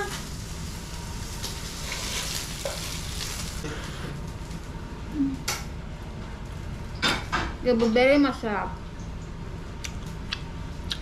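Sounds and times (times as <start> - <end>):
meat sizzling in a frying pan: 0.0 - 4.6.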